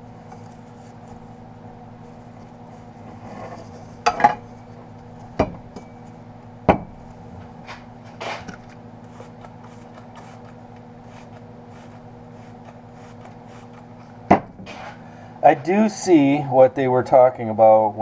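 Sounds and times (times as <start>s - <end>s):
rubbing and rustling of wrap: 0.0s - 1.4s, 9.0s - 14.0s
steady low hum: 0.0s - 18.0s.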